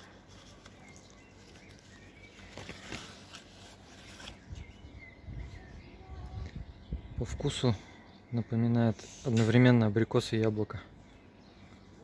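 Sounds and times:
leaves rustling: 0:00.0 - 0:06.7
faint bird chirps: 0:00.0 - 0:12.0
wind rumble on microphone: 0:04.5 - 0:07.4.

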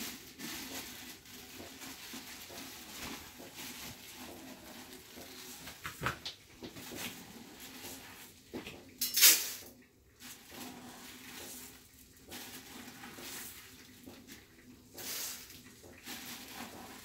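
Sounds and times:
dishes and utensils moved: 0:01.6 - 0:09.8.

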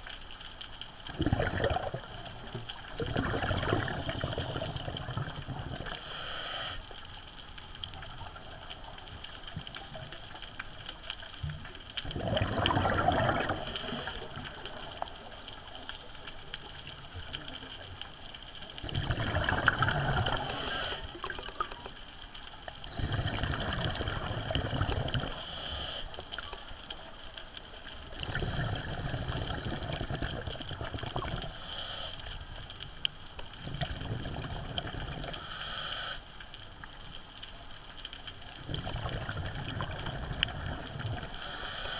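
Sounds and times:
gurgling exhaled bubbles: 0:01.0 - 0:06.1, 0:12.0 - 0:15.4, 0:18.7 - 0:22.0, 0:22.8 - 0:25.7, 0:27.9 - 0:31.6, 0:33.5 - 0:35.4, 0:38.4 - 0:41.9
regulator hiss: 0:05.9 - 0:07.0, 0:13.5 - 0:14.4, 0:20.3 - 0:21.2, 0:25.3 - 0:26.4, 0:31.4 - 0:32.4, 0:35.4 - 0:36.4, 0:41.3 - 0:41.9.

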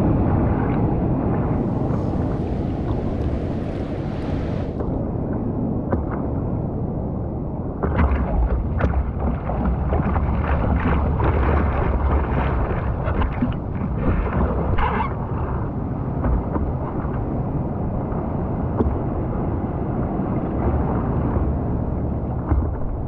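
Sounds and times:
water splashing and sloshing: 0:00.0 - 0:23.0
wind rumbling on microphone: 0:00.0 - 0:23.0
steady hiss: 0:01.6 - 0:04.8.

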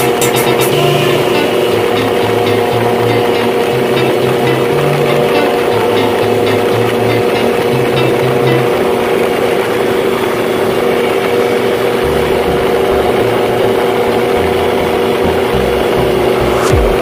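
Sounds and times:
aircraft engine and propeller: 0:00.1 - 0:17.0
wind rushing: 0:16.2 - 0:17.0.

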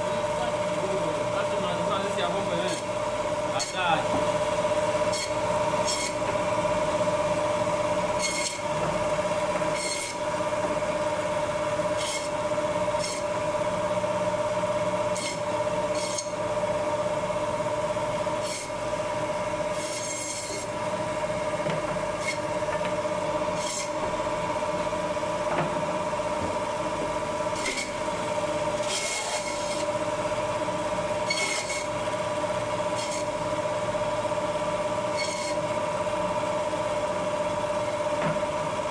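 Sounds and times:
band saw whining: 0:00.0 - 0:24.9, 0:26.0 - 0:36.2
saw rasping through bone: 0:05.1 - 0:06.2, 0:08.2 - 0:08.7, 0:09.7 - 0:10.2, 0:12.0 - 0:12.4, 0:13.0 - 0:13.3, 0:15.1 - 0:16.4, 0:18.4 - 0:18.8, 0:19.7 - 0:20.8, 0:22.2 - 0:22.5, 0:23.5 - 0:24.0, 0:27.5 - 0:28.0, 0:28.8 - 0:29.9, 0:31.2 - 0:32.0, 0:32.9 - 0:33.4, 0:35.2 - 0:35.6.

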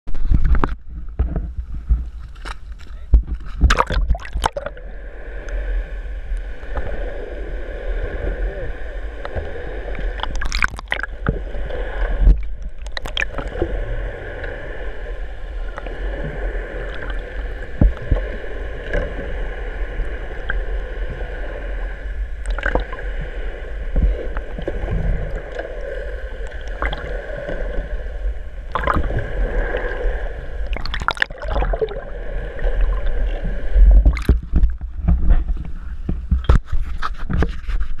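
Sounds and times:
sharp splashes and knocks: 0:00.2 - 0:04.7, 0:10.2 - 0:11.1, 0:34.0 - 0:35.3
muffled underwater gurgling: 0:02.9 - 0:36.6.

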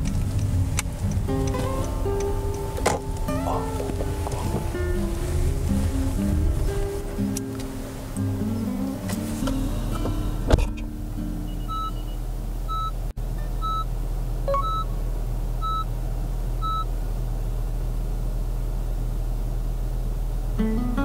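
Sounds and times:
car reverse warning beeps: 0:00.0 - 0:10.6, 0:11.4 - 0:13.9, 0:14.5 - 0:15.0, 0:15.6 - 0:15.9, 0:16.6 - 0:16.9
low steady car hum: 0:00.0 - 0:21.0.

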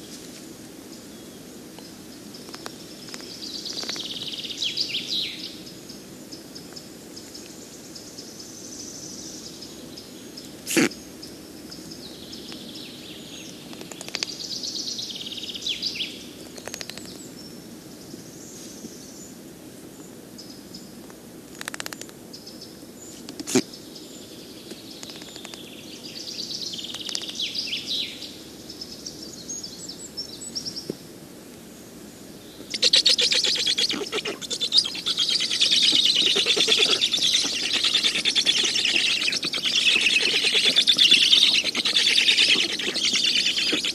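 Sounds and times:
nestlings high scratchy calls: 0:32.7 - 0:43.9.

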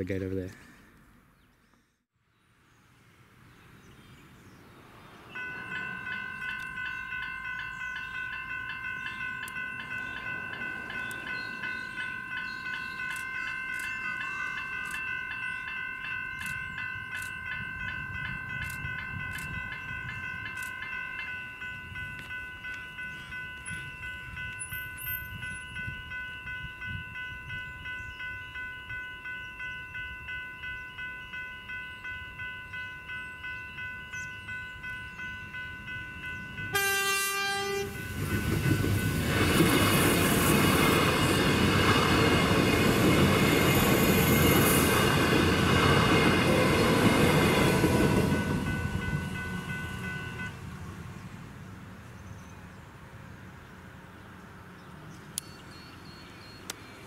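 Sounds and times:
train wheels on track: 0:04.9 - 0:52.6
level crossing bells ringing: 0:05.3 - 0:50.6
train horn: 0:36.7 - 0:38.2.

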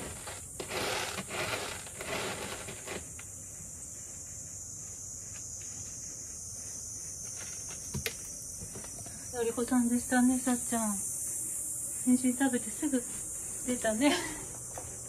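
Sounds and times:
cat scratching pellet litter: 0:00.0 - 0:03.3.

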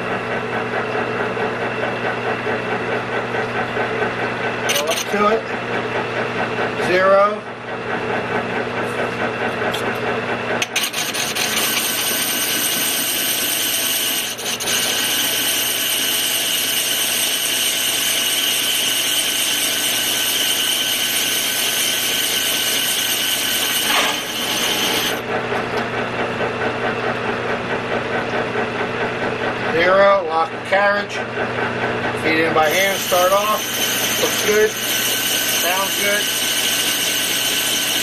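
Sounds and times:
lathe motor hum: 0:00.0 - 0:38.0
cutting tool scraping metal: 0:04.7 - 0:05.4, 0:10.6 - 0:25.2, 0:32.5 - 0:38.0.

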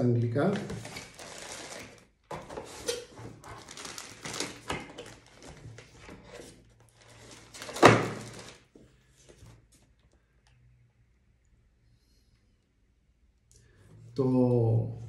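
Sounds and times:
packaging rustling: 0:00.5 - 0:08.8.

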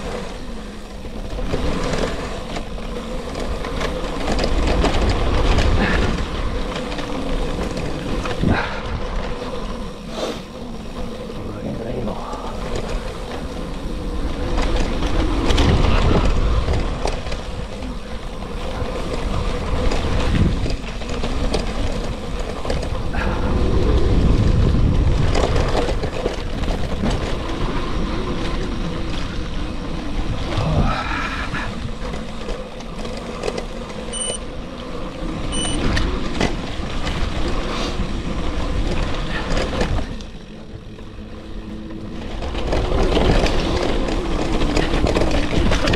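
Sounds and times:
wind buffeting microphone: 0:00.0 - 0:34.0
bicycle tyres rumbling over gravel: 0:00.0 - 0:45.9
short high beeps: 0:34.2 - 0:34.4, 0:35.6 - 0:35.8.

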